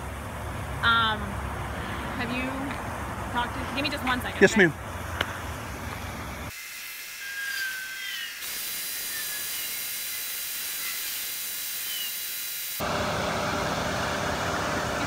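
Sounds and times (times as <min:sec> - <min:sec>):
steady high-pitched hiss: 0:08.4 - 0:12.8
faint chirps and whistles: 0:11.8 - 0:12.2.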